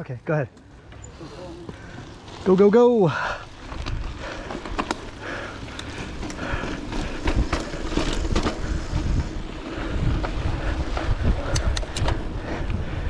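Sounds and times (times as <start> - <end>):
bike tyre noise on dirt: 0.2 - 13.0
bike clicks and rattles: 0.4 - 13.0
wind rumbling on microphone: 3.2 - 13.0.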